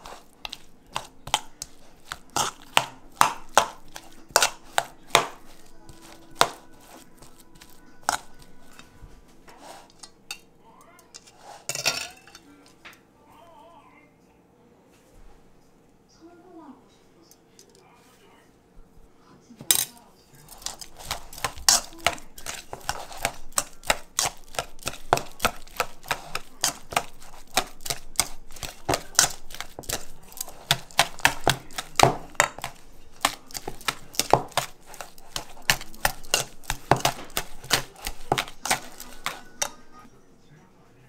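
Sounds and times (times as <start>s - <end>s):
whisk scraping metal bowl: 0.0s - 10.5s, 11.1s - 12.4s, 20.3s - 40.1s.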